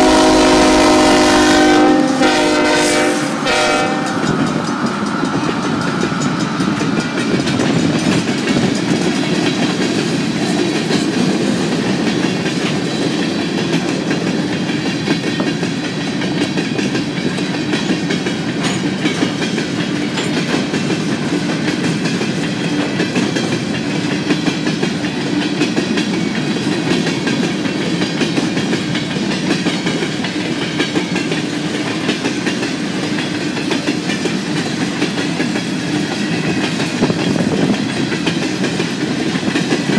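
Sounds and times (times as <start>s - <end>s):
locomotive horn: 0.0s - 4.6s
train wheels rumbling on rails: 0.0s - 39.9s.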